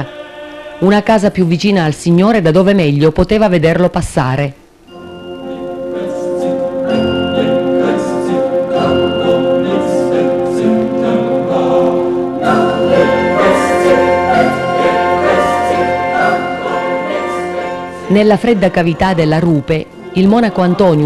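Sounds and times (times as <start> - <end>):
choir singing: 0.0 - 1.2, 5.0 - 21.0
steady held note: 4.8 - 21.0.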